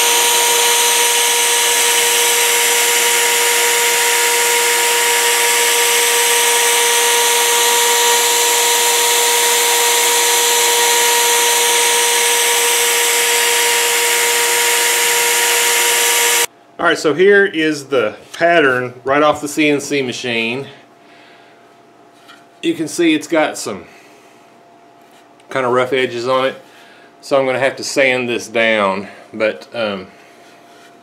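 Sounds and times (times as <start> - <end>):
cnc router motor whine: 0.0 - 16.5
router bit cutting wood: 0.0 - 16.5.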